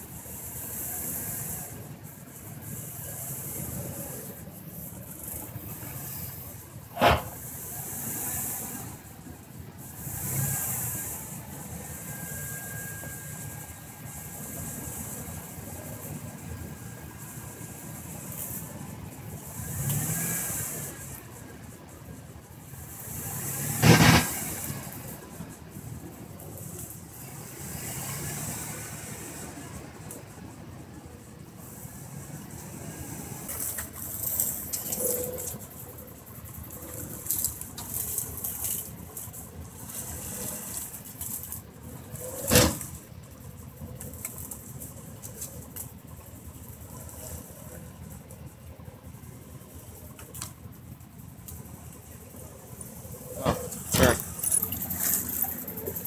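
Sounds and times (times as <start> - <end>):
off-road vehicle engine running: 0.0 - 56.0
short loud burst of noise: 6.9 - 7.4, 23.7 - 24.8
loud thump: 7.0 - 7.4.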